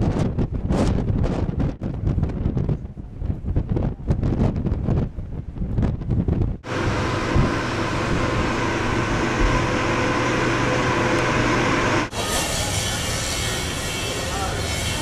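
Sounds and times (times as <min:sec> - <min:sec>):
machinery droning rush: 0:06.6 - 0:15.0.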